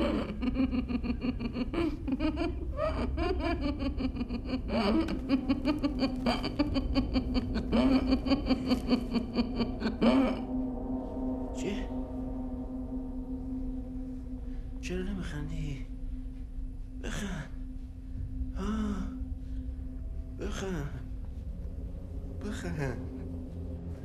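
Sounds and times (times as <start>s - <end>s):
person laughing: 0.0s - 10.5s
low droning music: 0.0s - 24.0s.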